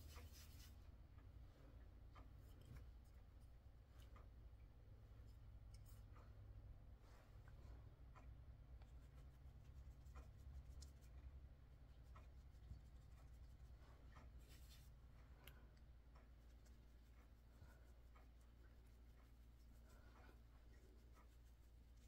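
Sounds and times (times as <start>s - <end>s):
faint low hum: 0.0s - 22.0s
applicator rubbing on skin: 8.9s - 11.3s, 16.4s - 22.0s.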